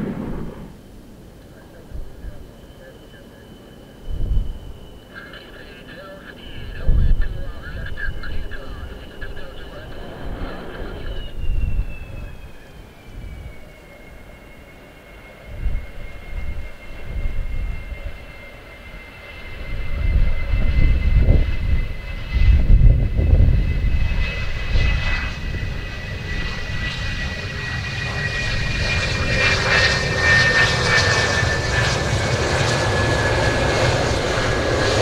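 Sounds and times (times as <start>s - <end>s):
deep rumble: 0.0s - 2.9s, 4.0s - 13.7s, 19.5s - 30.0s
jet engine high whine: 0.0s - 35.0s.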